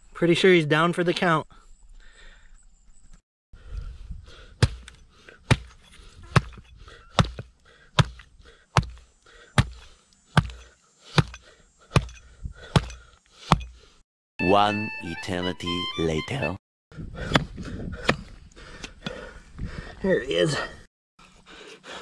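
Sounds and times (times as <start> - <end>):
hatchet chopping: 4.6 - 13.8.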